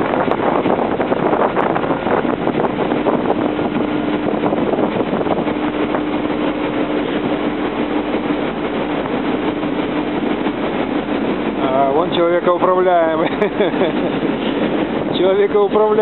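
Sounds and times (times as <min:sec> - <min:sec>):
industrial rumble: 0:00.0 - 0:16.0
wind noise: 0:00.0 - 0:16.0.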